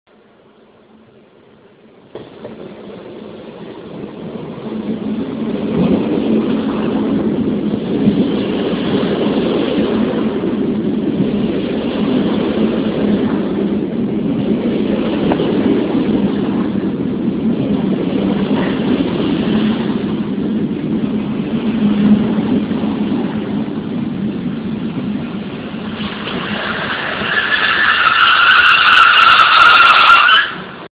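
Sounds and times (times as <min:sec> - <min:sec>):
train wheels rumbling on rails: 0:00.1 - 0:30.9
train brakes squealing: 0:26.0 - 0:30.8.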